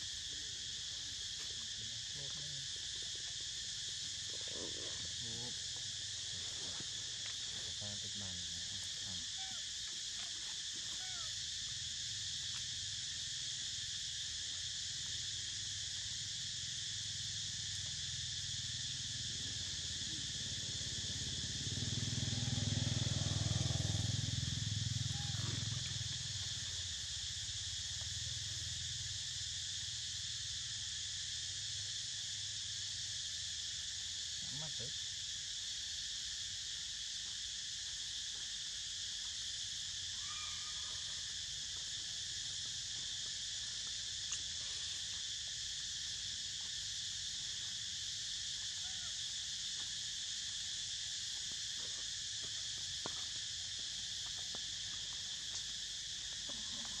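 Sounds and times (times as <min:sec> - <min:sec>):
insect chorus buzzing: 0:00.0 - 0:57.0.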